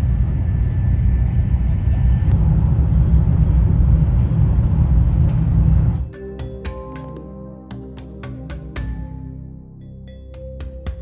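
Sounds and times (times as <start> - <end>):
train running low rumble: 0.0 - 6.2.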